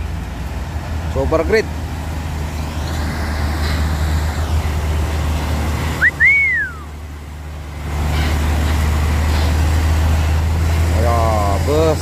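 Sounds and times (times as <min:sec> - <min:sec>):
diesel truck engine droning: 0:00.0 - 0:12.0
rising and falling whistle: 0:06.0 - 0:06.9.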